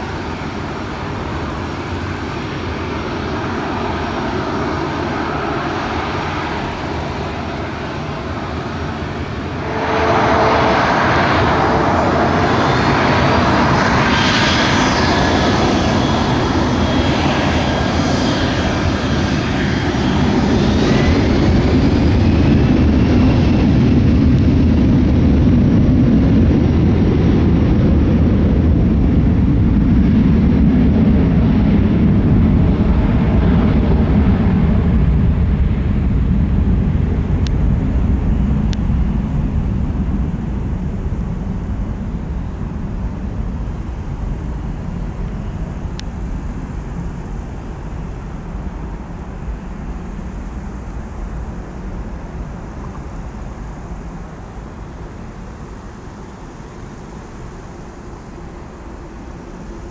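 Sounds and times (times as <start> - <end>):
jet engines at takeoff power: 0.0 - 59.9
deep rumble: 9.2 - 16.3.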